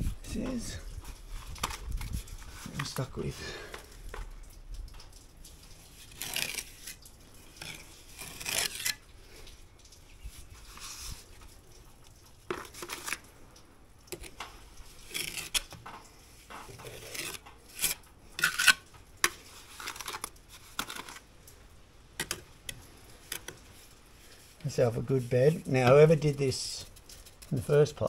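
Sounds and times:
trowel scraping on brick: 5.9s - 7.0s, 7.6s - 9.0s, 15.0s - 15.8s, 16.6s - 21.2s.

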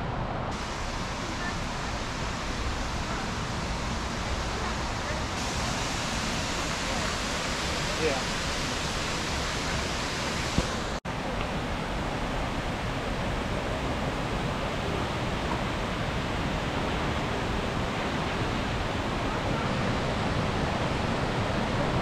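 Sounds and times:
waterfall rushing: 0.5s - 22.0s.

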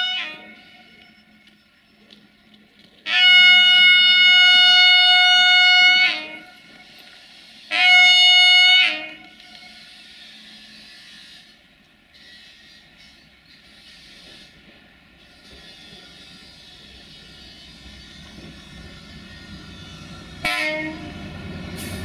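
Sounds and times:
train horn blasts: 0.0s - 1.0s, 3.0s - 7.0s, 7.6s - 9.9s, 20.4s - 21.2s.

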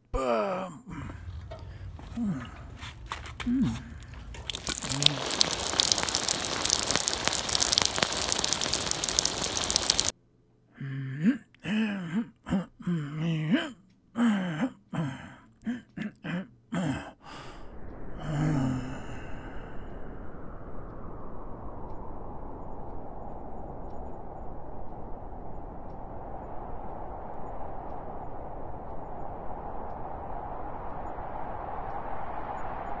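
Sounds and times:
person's voice in broken sounds: 0.0s - 1.1s, 3.4s - 4.0s, 4.6s - 7.3s, 10.7s - 17.6s
loud steady hiss: 4.6s - 10.1s.

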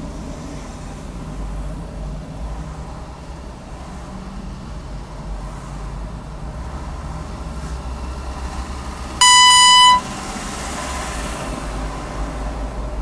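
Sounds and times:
car driving in traffic: 0.0s - 13.0s
electronic beep: 9.2s - 10.0s.

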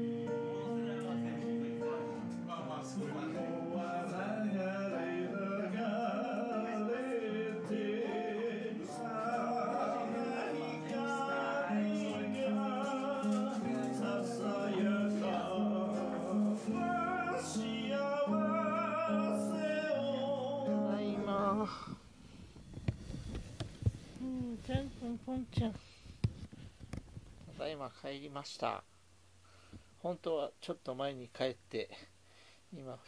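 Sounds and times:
man singing: 0.0s - 21.9s
acoustic guitar: 0.0s - 27.8s.

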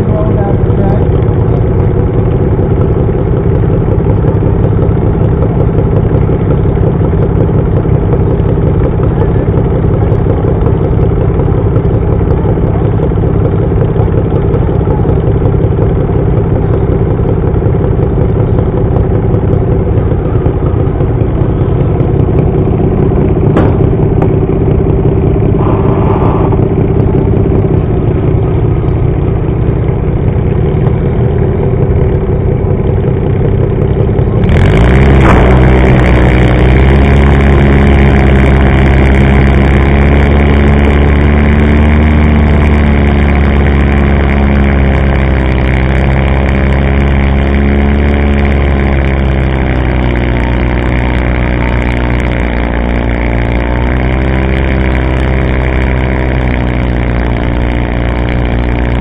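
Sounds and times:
tractor engine idling and revving: 0.0s - 59.0s.

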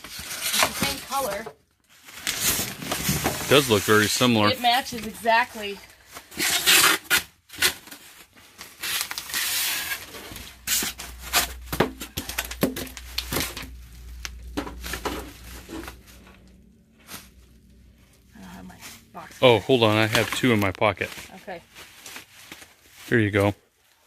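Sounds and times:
bubble wrap crinkling: 0.0s - 24.0s
sharp crackles and knocks: 10.1s - 18.2s.

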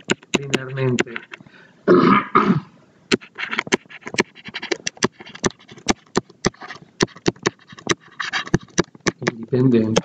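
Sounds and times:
stylus scratching on screen: 0.0s - 1.4s, 3.1s - 10.0s.

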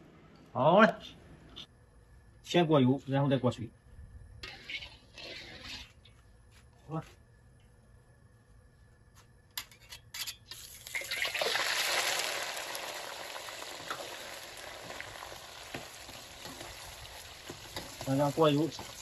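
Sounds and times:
shrimp sizzling in hot oil: 10.5s - 19.0s.

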